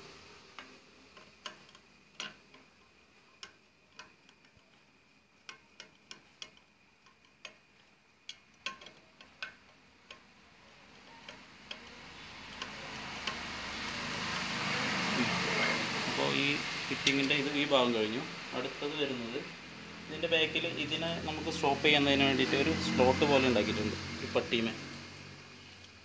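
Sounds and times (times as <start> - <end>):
screwdriver clicking on metal: 0.5 - 14.7.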